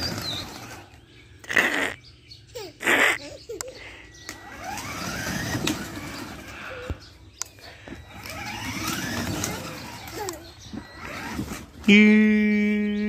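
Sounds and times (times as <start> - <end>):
plastic wheels rumbling on grit: 0.0 - 1.8, 4.2 - 12.1
toy car motors whining: 0.0 - 2.0, 2.8 - 13.0.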